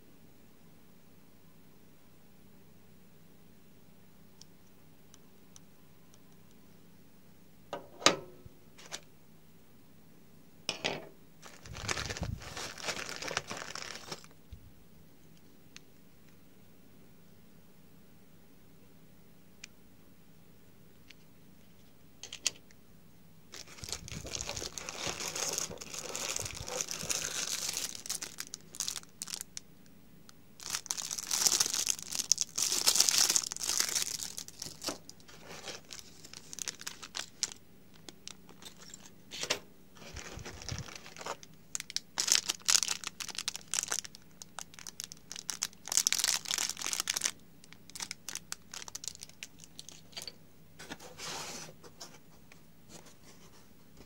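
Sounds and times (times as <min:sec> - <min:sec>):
plastic bags crinkling: 0:11.4 - 0:14.4, 0:23.5 - 0:29.6, 0:30.6 - 0:39.1, 0:40.0 - 0:50.3.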